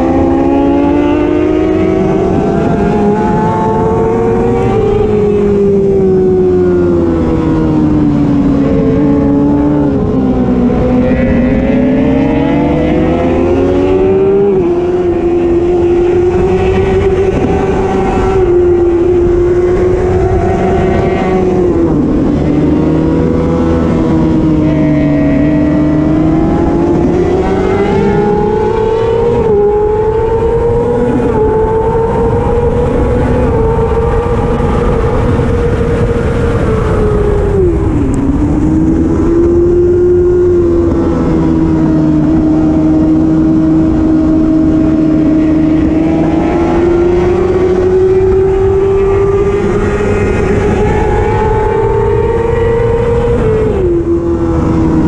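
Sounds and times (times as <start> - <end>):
racing motorcycle engine revving: 0.0 - 55.0.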